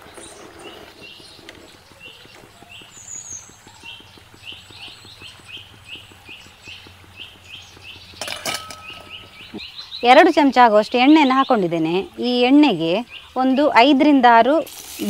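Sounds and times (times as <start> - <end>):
oil deep-frying hiss: 0.0 - 15.0
short chirping calls: 1.0 - 12.2
rapid low ticking pulse: 2.0 - 8.2.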